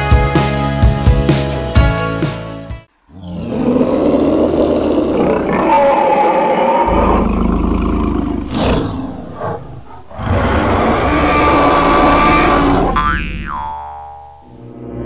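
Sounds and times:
dinosaur grunts: 3.1s - 5.8s, 6.8s - 8.8s
cartoon dinosaur roars: 3.1s - 13.0s.

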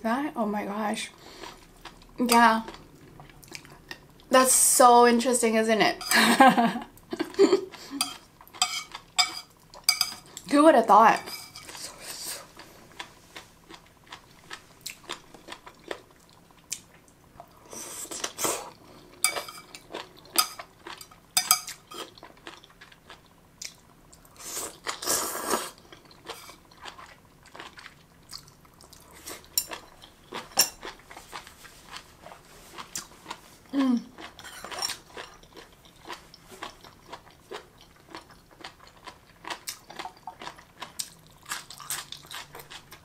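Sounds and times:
crunchy chewing: 34.1s - 43.0s.

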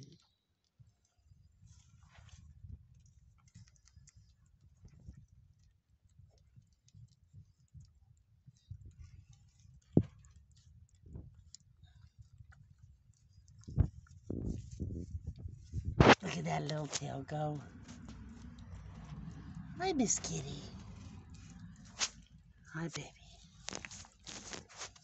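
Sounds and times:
goat kid suckling clicks: 2.9s - 14.8s
low rumble: 13.7s - 24.3s.

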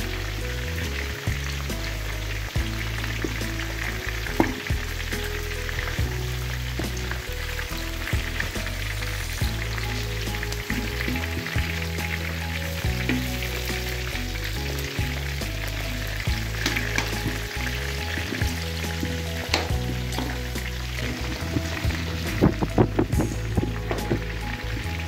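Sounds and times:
metal ladle scraping wok: 0.0s - 25.0s
pork sizzling in hot fat: 0.0s - 25.0s.

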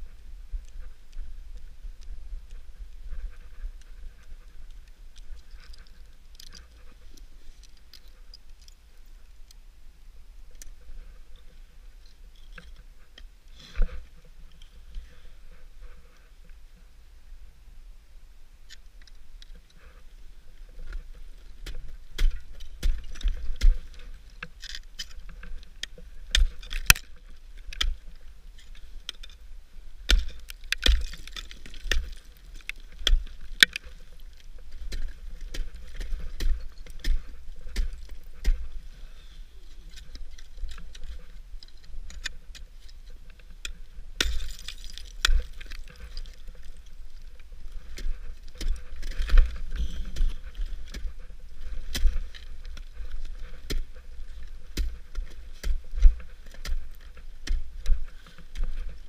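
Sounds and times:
ice axes striking ice: 30.0s - 34.1s, 44.2s - 46.8s.

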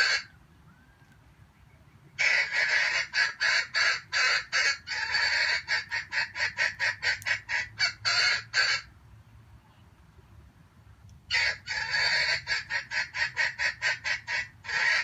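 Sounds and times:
junglefowl calling: 0.0s - 1.2s, 2.1s - 8.9s, 11.3s - 15.0s.

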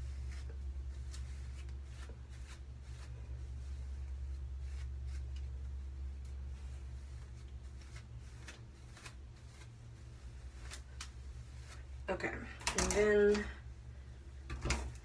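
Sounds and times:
hands rustling through hair: 0.0s - 12.1s
steady low hum: 0.0s - 15.0s.

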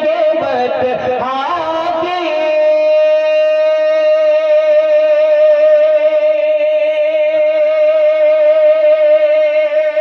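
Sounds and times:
man singing long high note: 0.0s - 10.0s.

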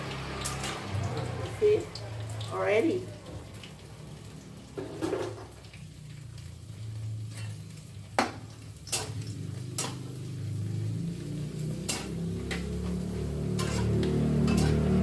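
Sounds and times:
crackers frying in oil: 0.0s - 15.0s
metal spoon scraping frying pan: 7.3s - 7.8s, 8.8s - 10.4s, 11.6s - 15.0s.

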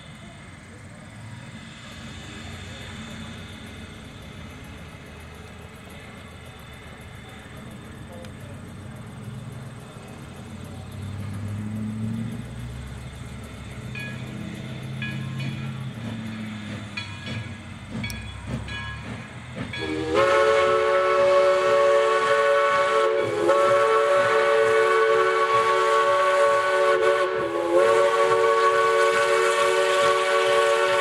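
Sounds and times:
steam whistle chord: 19.8s - 31.0s.

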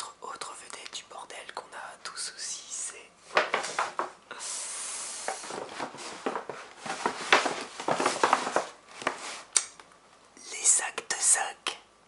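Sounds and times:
hiss: 4.3s - 5.6s
plastic bag crinkling: 5.4s - 9.5s.

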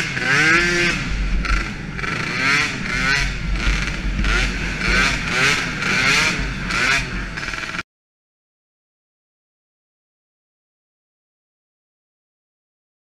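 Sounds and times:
quad engines revving: 0.0s - 7.8s.

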